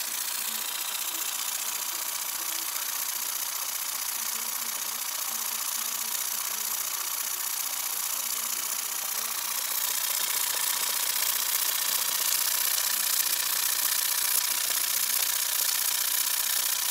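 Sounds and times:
toy steam engine running: 0.0s - 16.9s.

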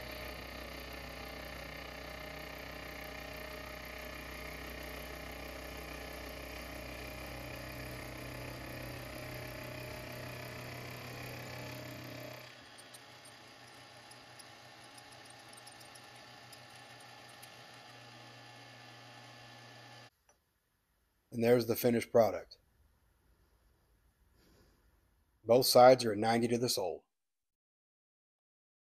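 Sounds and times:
milling machine whine: 0.0s - 20.1s.

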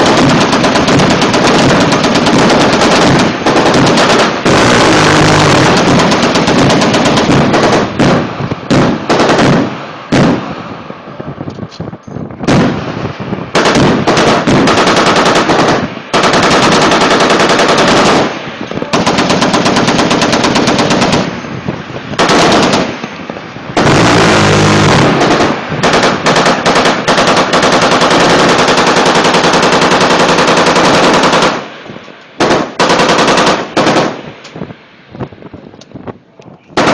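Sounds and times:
machine gun bursts: 0.0s - 9.7s, 13.6s - 21.3s, 22.2s - 22.9s, 23.8s - 31.6s, 32.4s - 34.2s
scattered gunshots: 0.0s - 10.7s, 12.4s - 21.4s, 22.1s - 23.0s, 23.8s - 31.7s, 32.4s - 34.3s.

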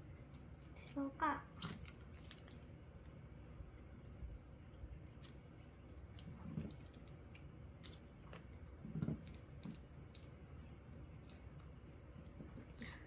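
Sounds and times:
plastic sleeves clicking and crinkling: 1.6s - 3.2s, 5.0s - 12.4s.

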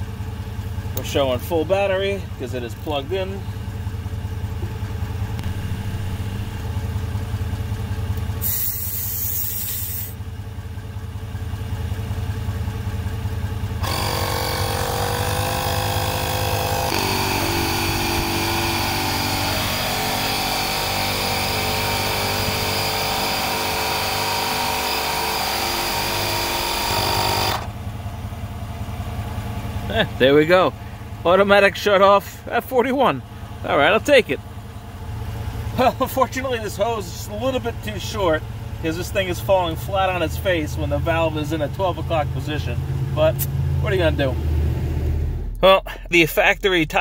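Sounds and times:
vehicle engine idling: 0.0s - 22.9s, 27.4s - 47.0s
tire inflator compressor running: 0.0s - 31.3s
air hissing from tire valve: 8.4s - 10.2s.

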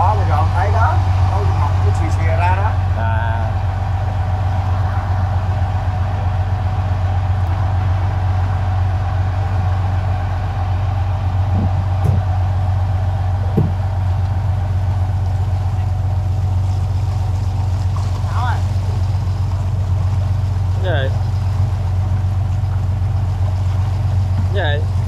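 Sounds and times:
boat engine droning: 0.0s - 25.0s
short knocks: 11.6s - 12.3s, 13.5s - 13.8s.

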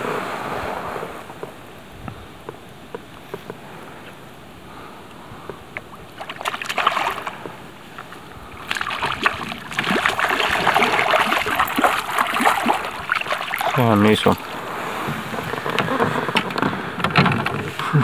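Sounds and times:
fish thrashing and splashing: 6.0s - 17.8s.

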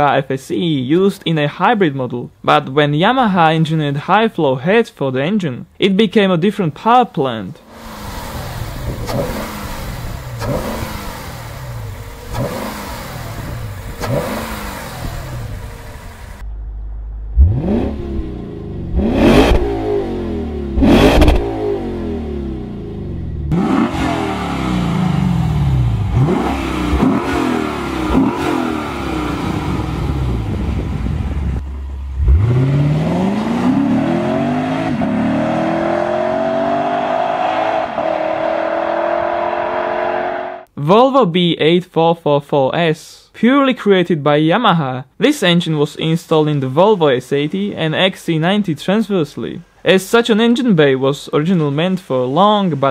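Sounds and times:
car engine revving: 7.7s - 40.7s
exhaust cracks: 7.7s - 40.7s.

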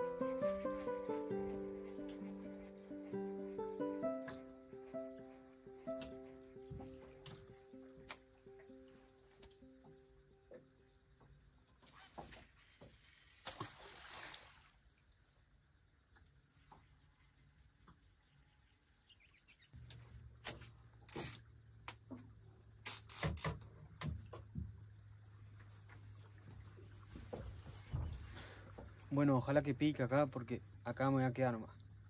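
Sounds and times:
crickets trilling: 0.0s - 32.0s
sharp knocks and clicks: 23.2s - 24.8s.

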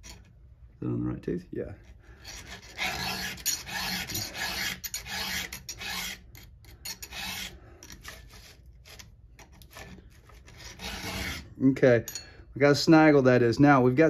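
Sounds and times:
file rasping on saw chain tooth: 2.2s - 11.6s.

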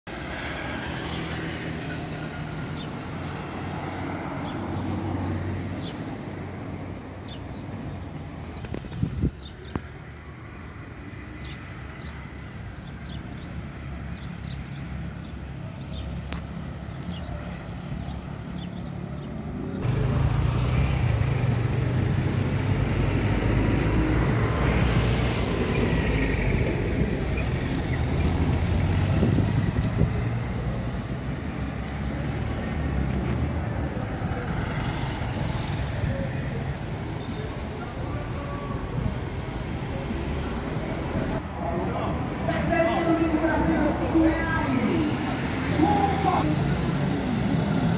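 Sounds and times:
road noise: 0.0s - 47.9s.

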